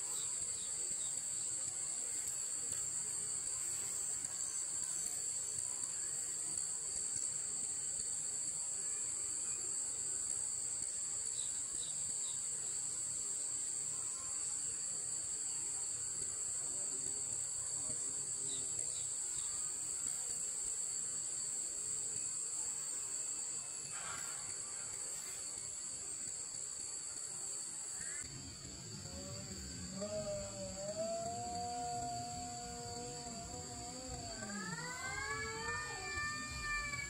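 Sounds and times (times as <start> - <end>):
insect chorus trilling: 0.0 - 37.0.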